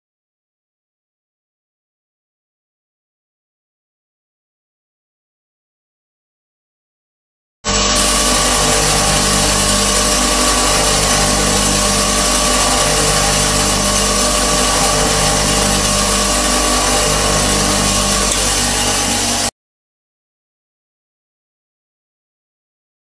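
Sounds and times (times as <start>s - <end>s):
bench grinder grinding drill bit: 7.7s - 19.5s.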